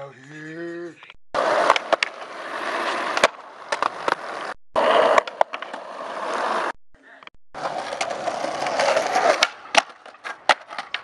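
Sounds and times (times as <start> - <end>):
skateboard clacks: 1.4 - 2.3, 3.0 - 6.6, 7.6 - 11.0
skateboard wheels on concrete: 1.4 - 6.8, 7.6 - 11.0.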